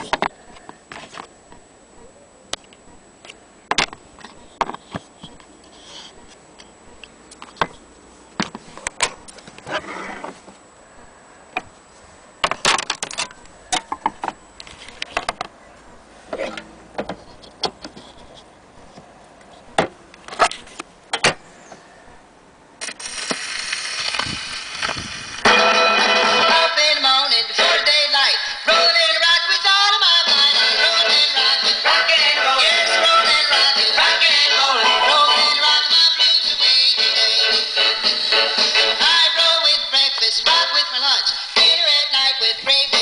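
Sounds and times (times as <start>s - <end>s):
record surface hiss and crackle: 0.0s - 43.0s
gramophone music: 25.0s - 43.0s.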